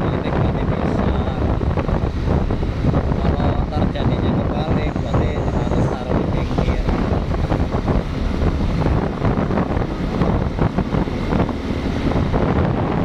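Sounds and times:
wind buffeting microphone: 0.0 - 13.0
motorbike engine: 0.8 - 13.0.

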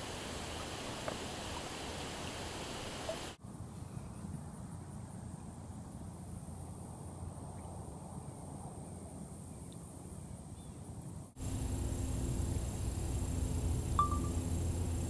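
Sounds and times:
faint high chirps: 14.0 - 14.5.

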